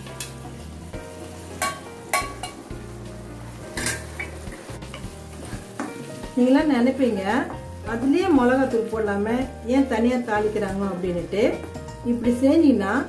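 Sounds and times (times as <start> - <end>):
soft sizzle: 0.0 - 13.0
utensils knocking against pans: 1.6 - 2.7, 3.7 - 5.1
spoon scraping steel pan: 3.7 - 5.1.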